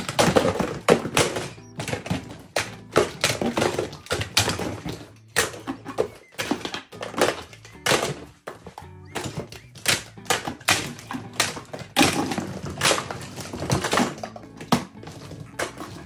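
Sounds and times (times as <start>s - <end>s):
toys dropping into cardboard box: 0.0s - 16.0s.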